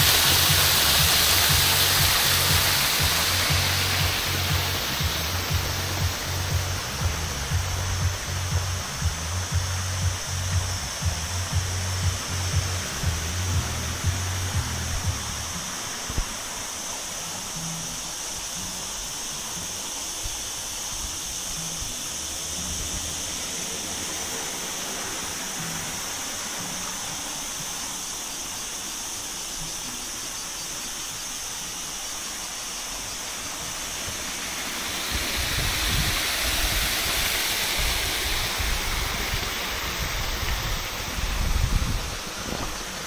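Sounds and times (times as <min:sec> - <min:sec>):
wind hiss: 0:00.0 - 0:43.0
wind buffeting microphone: 0:34.9 - 0:43.0.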